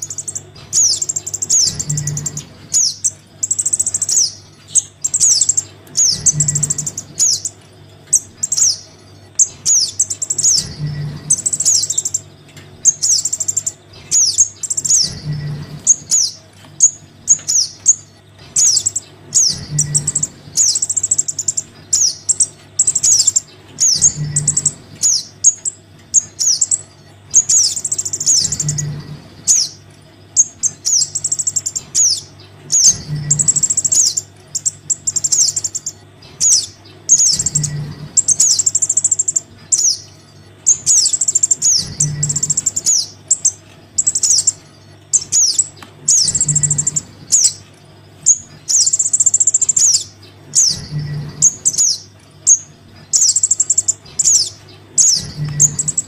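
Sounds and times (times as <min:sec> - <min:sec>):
nestlings begging chirps: 0:00.0 - 0:56.0.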